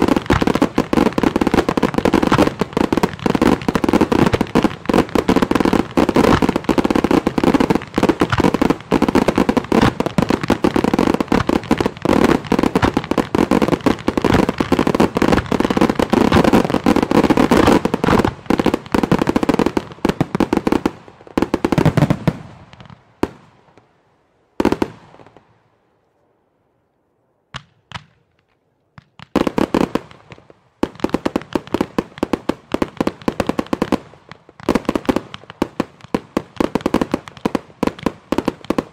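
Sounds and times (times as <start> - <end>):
single firework bangs: 0.0 - 20.2
firework bursts and crackle: 0.0 - 25.6, 27.5 - 38.9.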